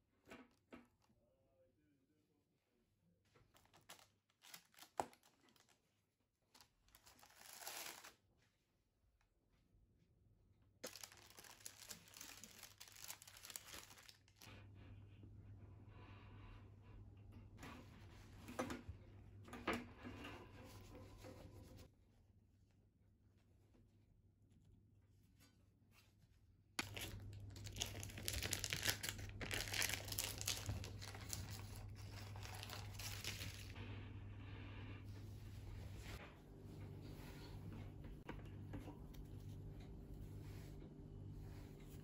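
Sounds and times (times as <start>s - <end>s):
baking paper crinkling: 3.4s - 8.2s, 10.8s - 14.5s, 26.8s - 33.8s.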